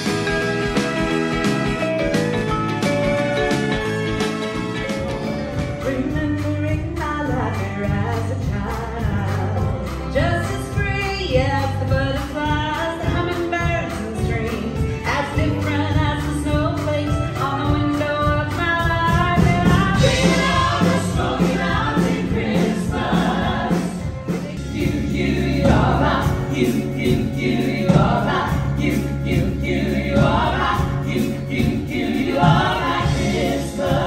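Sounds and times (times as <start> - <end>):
live band playing: 0.0 - 34.0
group singing in harmony: 19.6 - 34.0.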